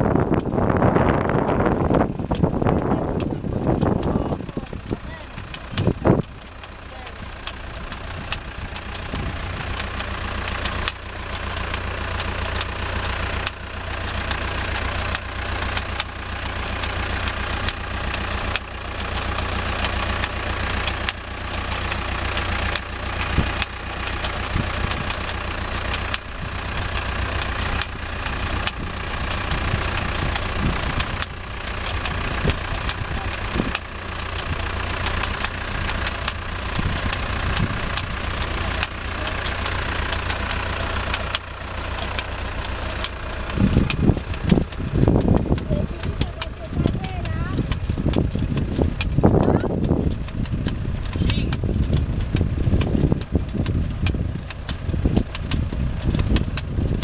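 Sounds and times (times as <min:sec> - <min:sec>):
machinery clicks and clatter: 0:00.0 - 0:57.0
tractor diesel engine running: 0:00.0 - 0:57.0.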